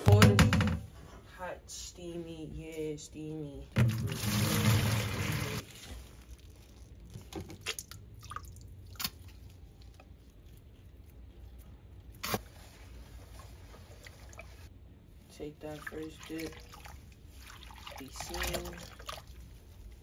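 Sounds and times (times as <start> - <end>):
water pouring and splashing: 3.8 - 9.5, 15.6 - 20.0.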